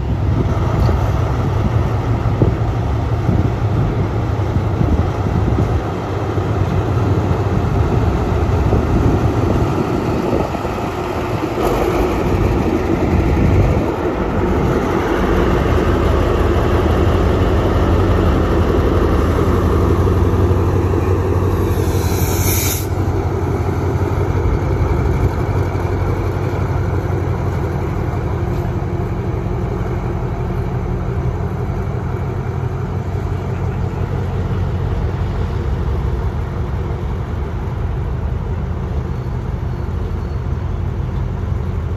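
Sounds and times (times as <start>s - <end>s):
diesel locomotive engine humming: 0.0s - 41.9s
sharp hiss of air: 21.4s - 23.2s.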